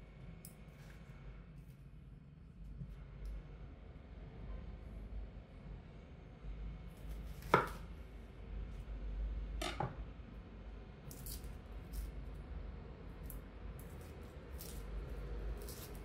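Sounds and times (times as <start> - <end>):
knife chopping onto wooden board: 7.4 - 7.8
onion skin crackling: 13.2 - 16.0.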